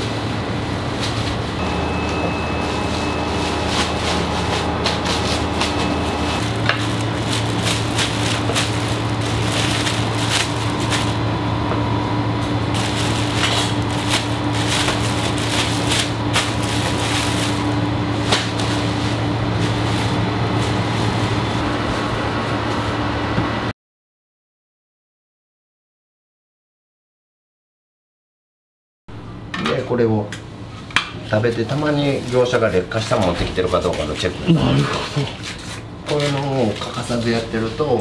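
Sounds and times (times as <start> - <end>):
machine hum: 0.0 - 23.7, 29.1 - 38.0
plastic bags rustling: 0.8 - 23.1.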